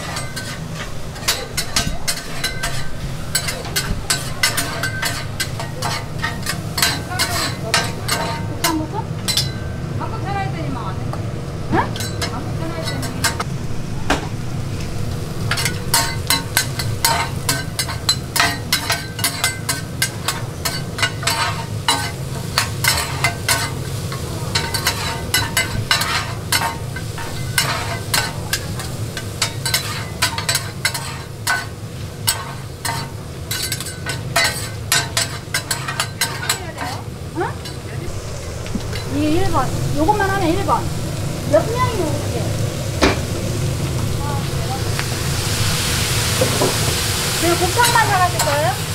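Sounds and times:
metal scrapers on steel griddle: 0.0 - 9.7, 15.4 - 40.8
steady low hum: 0.0 - 48.6
food sizzling: 0.0 - 48.9.

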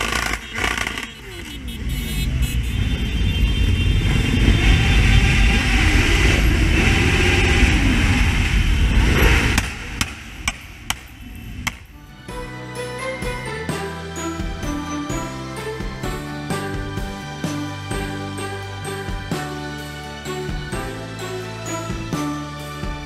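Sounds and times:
sharp clicks: 0.0 - 1.2
motorcycle engines revving: 0.0 - 11.9
wind rumble on camera: 2.4 - 11.9.

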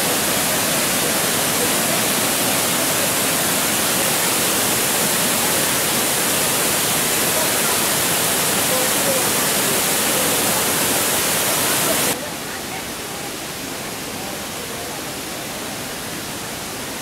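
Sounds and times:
water rushing over rocks: 0.0 - 17.0.

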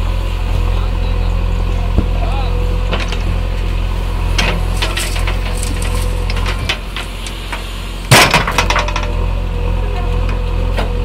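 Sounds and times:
diesel engine running under load: 0.0 - 11.0
steady whine: 0.0 - 11.0
soil and stones clattering into metal: 4.3 - 9.4
bucket scraping stony ground: 4.4 - 7.7.

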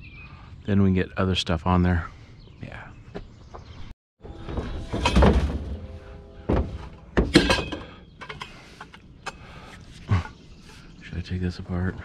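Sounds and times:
scrap metal clanking and thudding: 4.3 - 9.0
metal ringing: 4.4 - 8.6.

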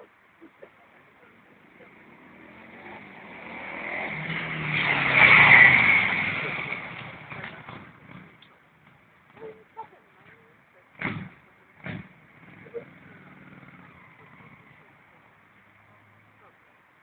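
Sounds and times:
motorcycle engine passing by: 1.4 - 16.5.

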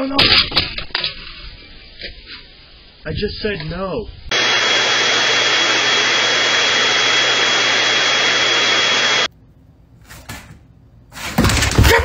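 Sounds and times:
vacuum cleaner whining: 4.3 - 9.3.

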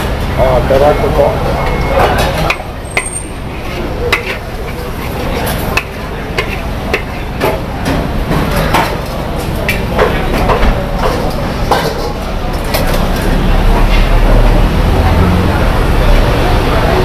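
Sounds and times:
low traffic rumble: 0.0 - 17.0
metal spatula scraping a wok: 2.2 - 7.4.

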